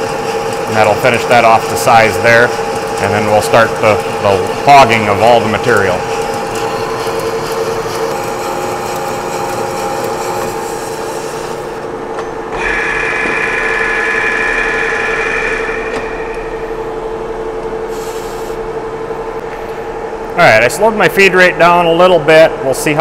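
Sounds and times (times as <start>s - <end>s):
lathe tool cutting steel: 0.0s - 11.8s, 12.6s - 17.1s
lathe gear whine: 0.0s - 19.4s
high-pitched whine: 12.4s - 19.4s.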